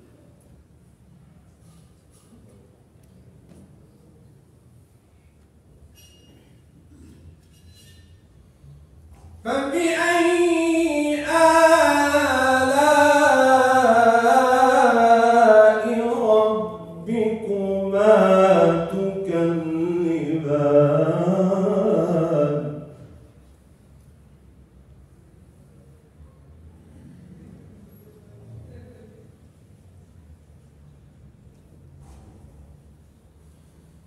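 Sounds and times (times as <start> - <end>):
man chanting recitation: 9.4 - 23.2.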